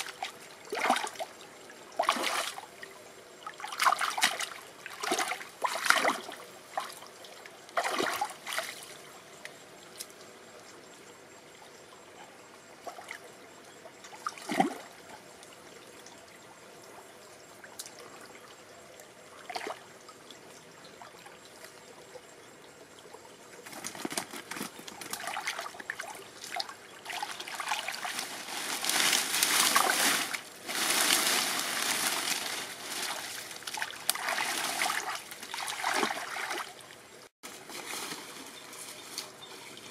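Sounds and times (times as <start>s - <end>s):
water trickling: 0.0s - 37.3s
hands splashing in water: 26.5s - 36.7s.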